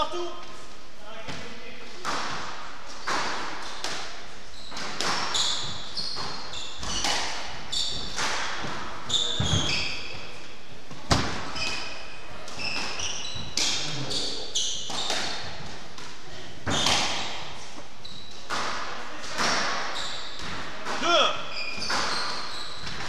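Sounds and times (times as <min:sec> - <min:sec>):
squash ball hitting rackets and walls: 0:01.2 - 0:23.0
shoes squeaking on wooden floor: 0:04.5 - 0:10.3, 0:11.2 - 0:15.7, 0:17.8 - 0:18.7, 0:19.4 - 0:23.0.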